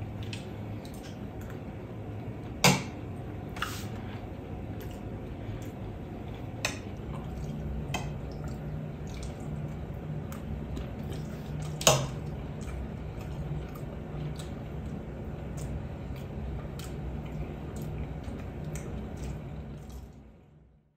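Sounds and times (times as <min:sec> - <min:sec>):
low steady hum: 0:00.0 - 0:20.9.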